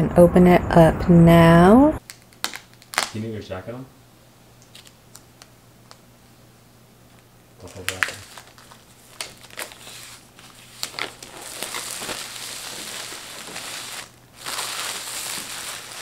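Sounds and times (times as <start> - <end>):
plastic shrink-wrap crinkling: 2.0 - 3.2, 7.6 - 16.0.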